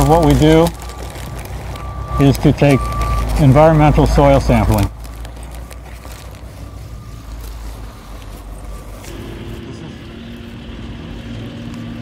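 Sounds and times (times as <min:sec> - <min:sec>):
engine rumbling: 0:00.0 - 0:12.0
droning hum: 0:05.1 - 0:11.3.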